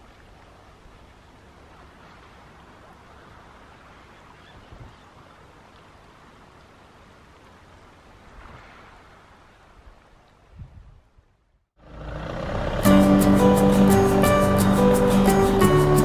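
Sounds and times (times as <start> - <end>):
wind rumbling on microphone: 0.8 - 5.4, 8.2 - 11.5.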